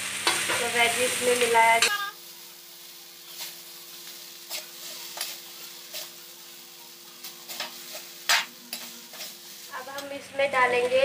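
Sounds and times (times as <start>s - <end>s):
faint sizzle: 0.0s - 11.0s
metal spatula scraping a pan: 3.2s - 6.2s, 7.2s - 10.1s.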